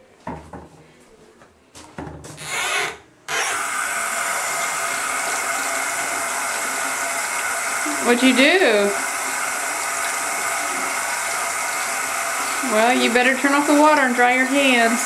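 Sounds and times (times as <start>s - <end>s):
water running into sink: 3.3s - 15.0s.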